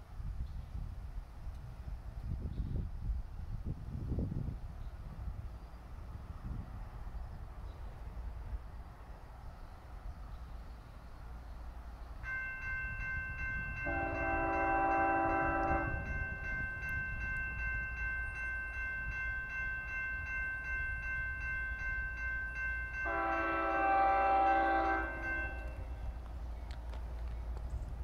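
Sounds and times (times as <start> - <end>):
locomotive air horn blasts: 13.8 - 16.4, 23.0 - 26.2.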